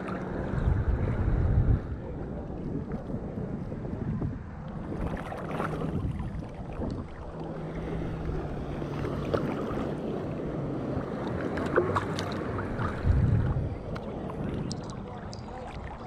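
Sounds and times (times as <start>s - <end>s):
low steady hum: 0.0s - 16.0s
wind buffeting microphone: 0.0s - 16.0s
small waves sloshing and splashing: 4.4s - 16.0s
sharp splash clicks: 11.2s - 13.0s, 13.9s - 15.8s.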